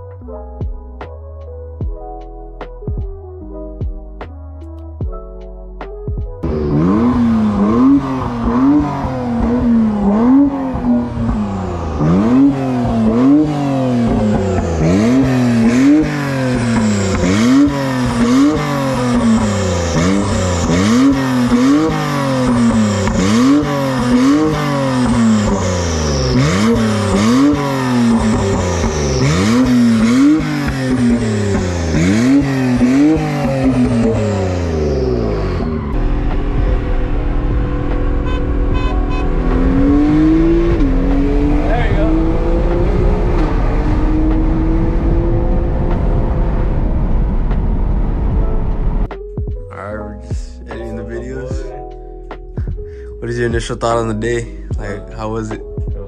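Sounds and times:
car engine revving: 6.4 - 49.2.

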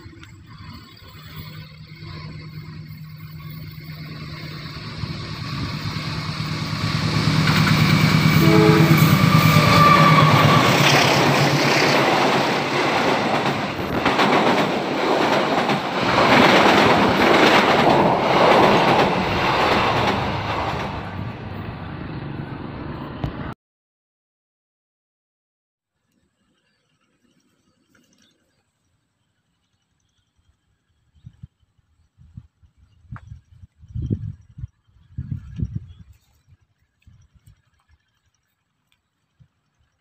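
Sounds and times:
diesel locomotive engine hum: 0.0 - 23.6, 29.8 - 38.0
train wheels clacking over rail joints: 0.6 - 21.2.

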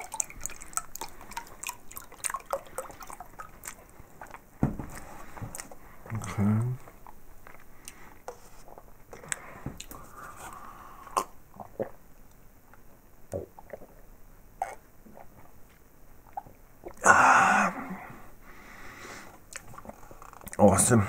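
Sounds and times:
drinking sip: 0.0 - 4.4
juice pouring: 0.0 - 4.4.

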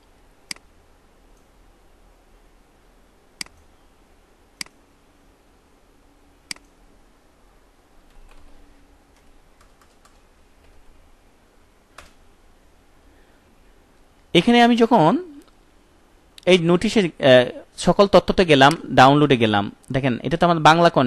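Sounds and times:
computer mouse clicking: 3.4 - 3.7, 6.5 - 6.8, 8.1 - 10.8.

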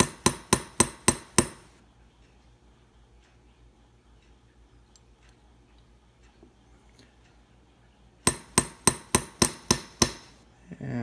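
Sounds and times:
small hammer tapping metal: 0.0 - 1.7, 8.2 - 10.4.

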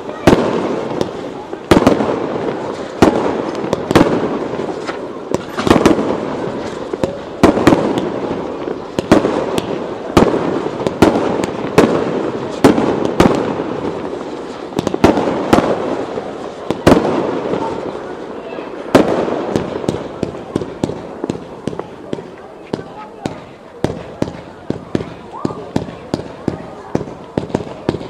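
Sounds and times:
firework shells bursting: 0.0 - 18.0
fireworks crackle and rumble: 0.0 - 28.0.

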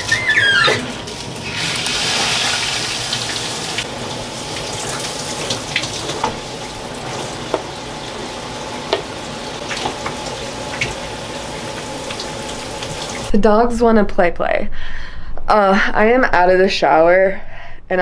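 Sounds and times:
water splashes and drips: 0.0 - 8.1, 9.0 - 13.3
shower spray hissing: 1.4 - 3.8.

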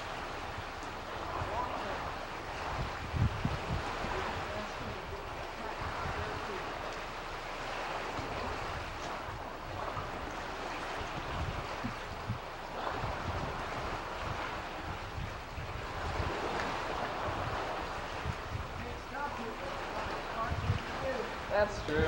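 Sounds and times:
wind gusts on microphone: 0.0 - 22.0.

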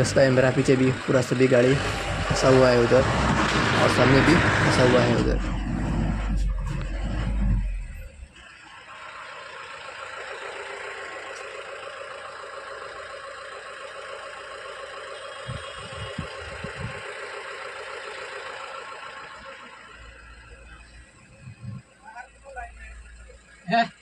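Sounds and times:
vehicle engine running: 0.0 - 24.0
dull low thumps: 1.8 - 8.3, 15.5 - 17.0.

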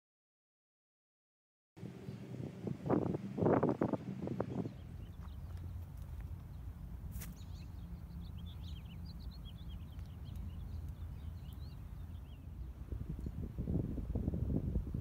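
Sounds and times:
rustling buffeting noise: 1.8 - 15.0
small birds chirping: 3.5 - 14.8.

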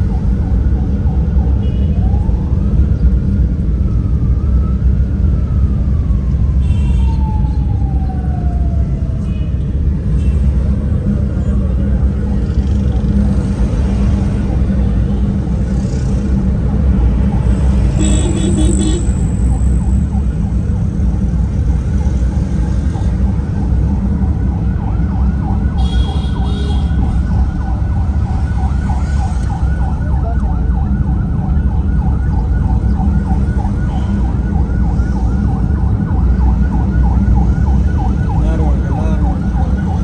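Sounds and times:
yelping siren: 0.0 - 9.6, 16.6 - 20.9, 22.8 - 40.0
car engine and road rumble: 0.0 - 40.0.

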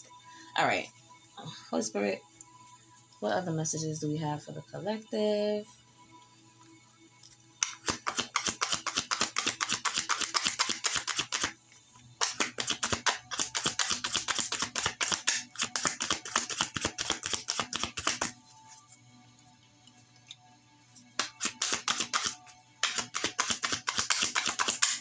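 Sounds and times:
cards being shuffled: 7.6 - 11.5, 12.2 - 18.4, 21.2 - 25.0.

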